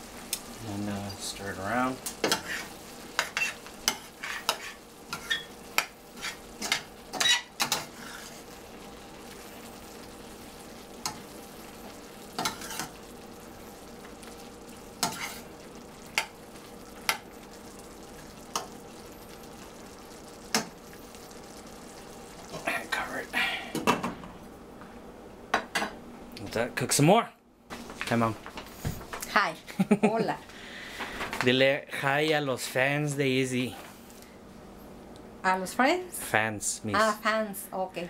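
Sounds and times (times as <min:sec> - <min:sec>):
vegetables sizzling in a pan: 0:00.0 - 0:24.6, 0:27.7 - 0:31.4, 0:35.4 - 0:37.9
spatula knocking and scraping pan: 0:02.1 - 0:08.4, 0:15.0 - 0:15.4.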